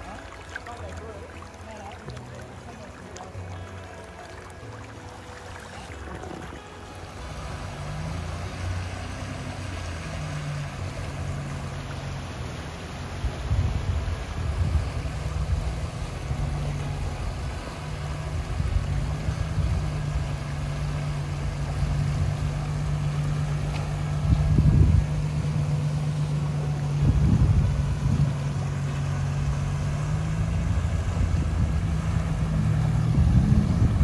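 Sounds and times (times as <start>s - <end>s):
rushing water: 0.0s - 34.0s
vehicle engine running: 5.4s - 34.0s
wind buffeting microphone: 13.2s - 17.6s, 18.2s - 34.0s.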